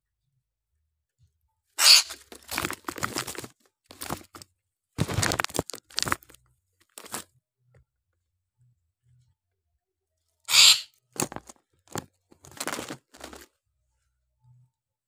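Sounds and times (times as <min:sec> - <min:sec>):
rustling against bird cage: 0:01.8 - 0:04.4, 0:05.0 - 0:07.2, 0:10.5 - 0:13.5.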